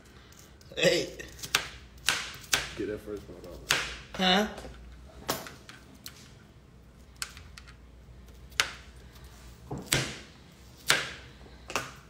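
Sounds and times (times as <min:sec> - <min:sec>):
knife chopping onion on board: 0:01.4 - 0:02.8, 0:03.6 - 0:04.0, 0:09.7 - 0:10.2, 0:10.8 - 0:12.0.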